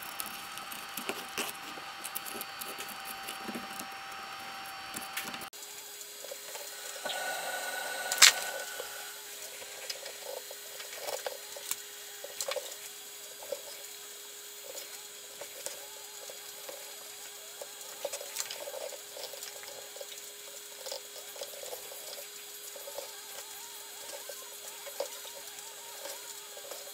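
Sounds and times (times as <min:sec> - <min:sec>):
thread rasping through leather: 0:00.0 - 0:05.5
faint steady hum: 0:00.0 - 0:26.9.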